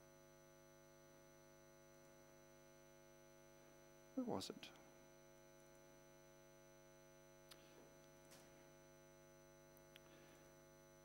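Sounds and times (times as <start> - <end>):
mains hum: 0.0 - 11.0.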